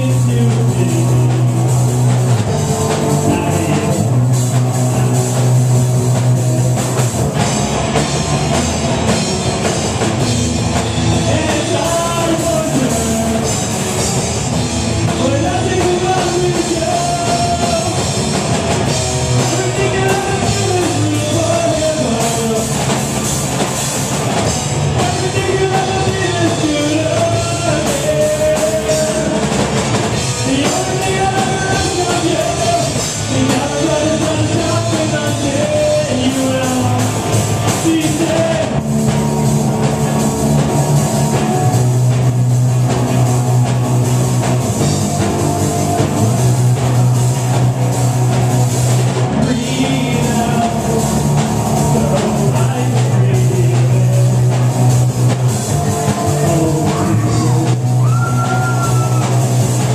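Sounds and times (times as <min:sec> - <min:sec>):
person singing: 0:00.0 - 0:01.6, 0:02.6 - 0:04.2, 0:11.2 - 0:13.8, 0:15.1 - 0:18.2, 0:19.4 - 0:23.0, 0:24.9 - 0:29.6, 0:30.4 - 0:38.9, 0:49.3 - 0:54.8, 0:55.7 - 0:59.4
rock band playing: 0:00.0 - 0:59.9.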